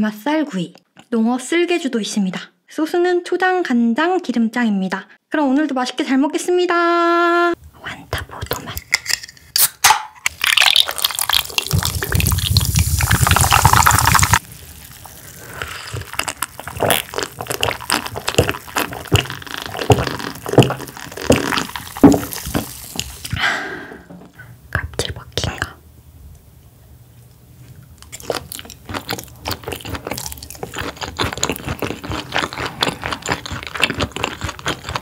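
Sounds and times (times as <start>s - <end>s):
liquid pouring into a glass: 10.3s - 16.7s.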